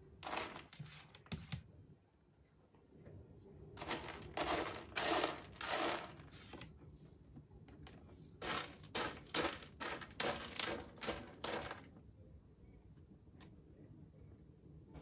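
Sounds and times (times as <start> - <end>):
cat scratching in litter: 0.2 - 1.4, 3.8 - 6.7, 8.3 - 11.9.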